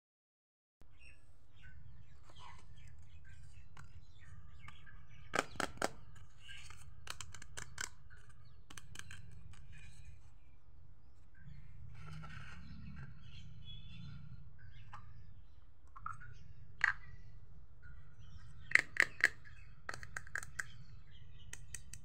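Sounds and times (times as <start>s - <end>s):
faint bird chirping: 0.8s - 22.0s
plastic toy clicking: 5.3s - 9.7s, 18.7s - 20.8s, 21.5s - 22.0s.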